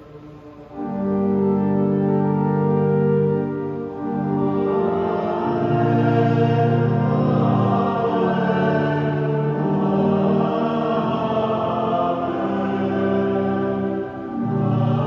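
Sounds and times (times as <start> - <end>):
organ-like held chords: 0.0 - 15.0
chant-like singing: 4.1 - 15.0.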